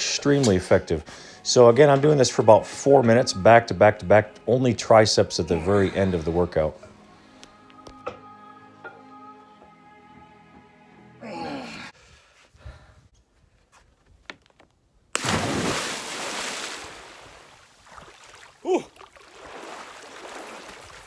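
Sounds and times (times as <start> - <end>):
background music: 0.0 - 12.0
person sighing: 11.2 - 12.0, 18.6 - 19.0.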